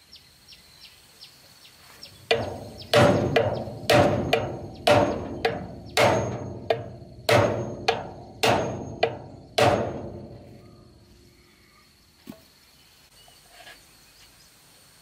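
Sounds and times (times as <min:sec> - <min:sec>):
hammer striking steel wheel hub: 0:02.3 - 0:10.4.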